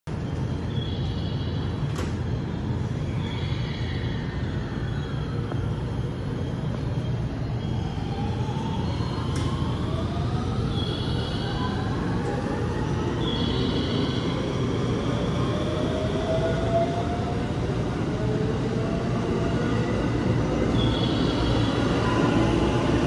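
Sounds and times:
low rumble of trains: 0:00.1 - 0:23.0.

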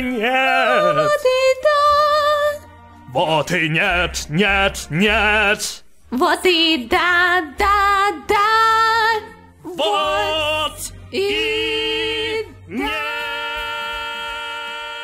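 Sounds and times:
person singing: 0:00.0 - 0:02.4, 0:09.6 - 0:15.0.

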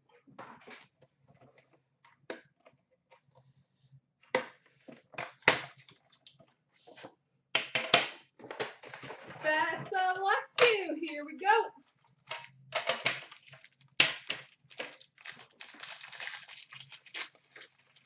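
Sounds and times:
plastic wrap crinkling and tearing: 0:11.8 - 0:12.3, 0:13.1 - 0:18.0.

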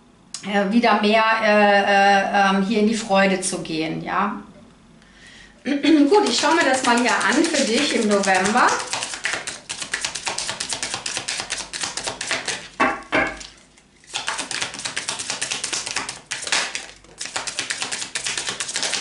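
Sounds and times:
cards shuffling: 0:06.1 - 0:12.8, 0:13.4 - 0:19.0.

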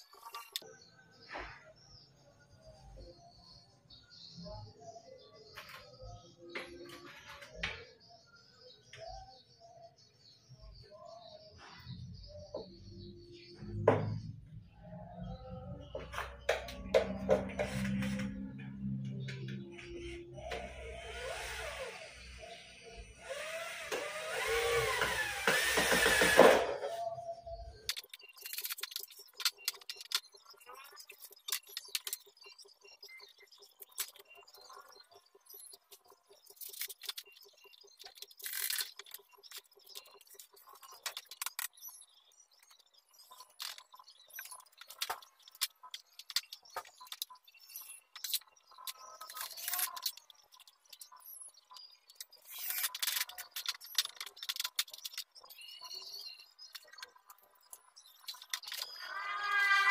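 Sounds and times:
cordless drill motor whine: 0:20.5 - 0:22.5, 0:23.2 - 0:26.8.

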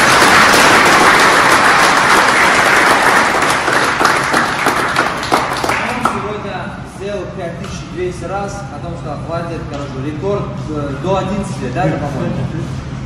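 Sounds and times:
people applauding: 0:00.0 - 0:06.4.

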